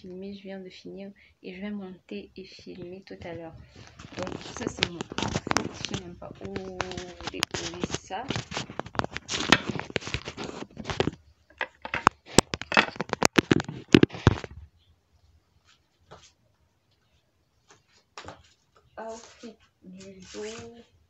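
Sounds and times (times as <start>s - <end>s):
phone handling rustling and clicks: 3.3s - 14.6s.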